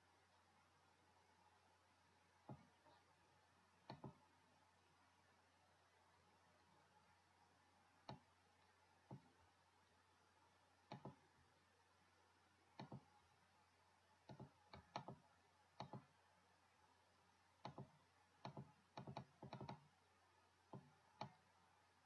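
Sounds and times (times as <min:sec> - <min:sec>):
faint steady hiss: 0:00.0 - 0:22.0
mouse button clicking: 0:03.8 - 0:04.2.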